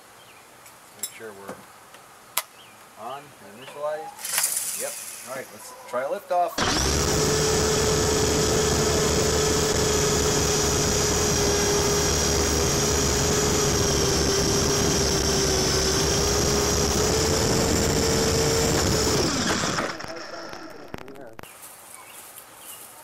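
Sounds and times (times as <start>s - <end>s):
rc helicopter rotors whining: 6.6s - 21.4s.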